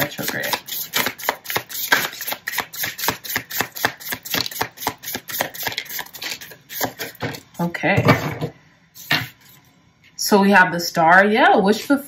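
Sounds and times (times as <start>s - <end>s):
cards being shuffled: 0.0s - 7.0s.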